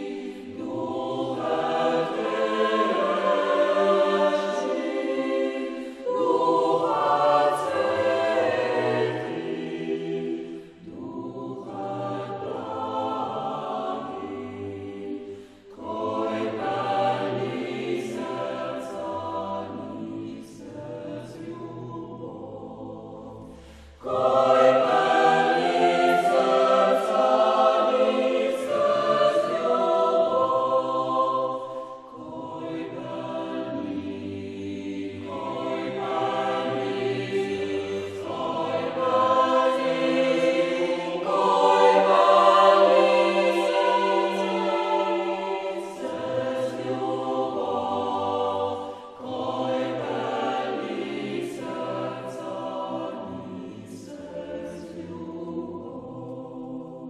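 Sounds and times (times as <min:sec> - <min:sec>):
choir singing sustained chords: 0:00.0 - 0:57.0
singers breathing: 0:05.7 - 0:06.1, 0:10.4 - 0:10.9, 0:15.2 - 0:15.8, 0:23.4 - 0:24.1, 0:31.6 - 0:32.1, 0:48.8 - 0:49.2.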